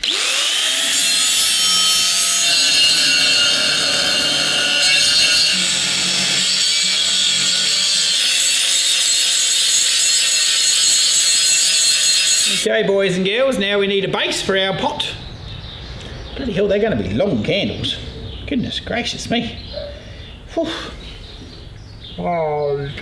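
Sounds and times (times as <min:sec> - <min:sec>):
angle grinder cutting metal pipe: 0:00.0 - 0:12.7.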